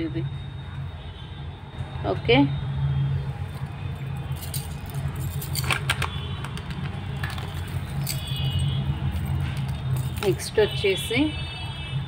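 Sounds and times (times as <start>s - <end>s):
metal jewellery clinking: 3.5s - 10.8s.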